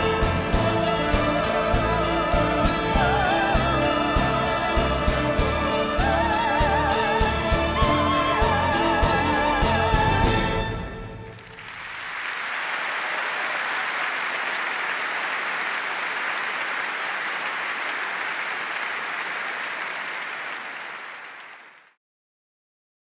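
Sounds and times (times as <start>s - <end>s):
audience applauding: 11.2s - 22.0s.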